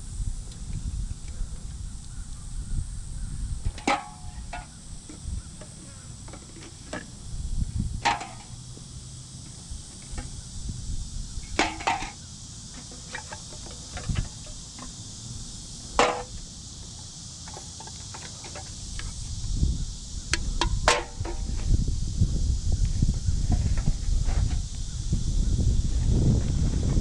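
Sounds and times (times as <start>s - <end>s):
insects droning: 0.0s - 27.0s
beer cans clinking: 3.7s - 7.2s, 8.0s - 8.6s, 11.4s - 15.0s, 15.9s - 16.4s, 20.6s - 21.5s.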